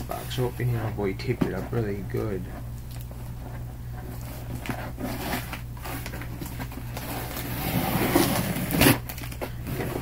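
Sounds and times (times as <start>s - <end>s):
cardboard scraping: 3.3s - 10.0s
packing paper rustling: 4.1s - 10.0s
tape tearing: 4.6s - 10.0s.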